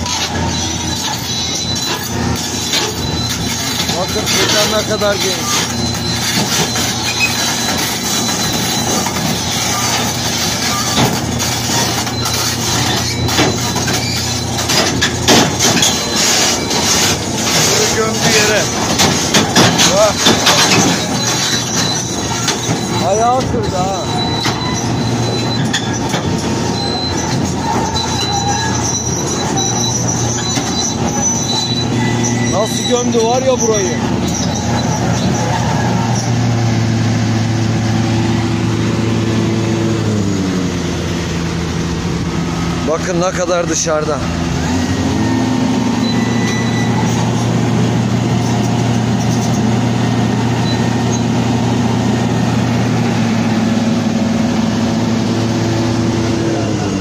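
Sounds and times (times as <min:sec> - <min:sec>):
steel tracks clanking on deck: 0:00.0 - 0:40.2
excavator diesel engine under load: 0:00.0 - 0:57.0.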